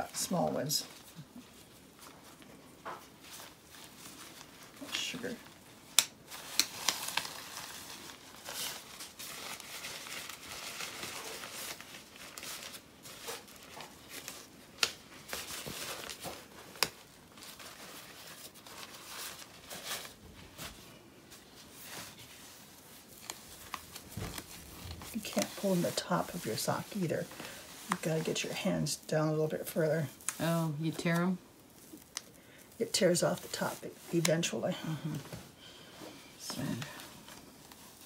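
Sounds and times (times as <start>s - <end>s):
fabric rustling and crinkling: 0.0s - 38.0s
fabric rubbing on stocking: 6.2s - 32.2s, 32.8s - 35.3s.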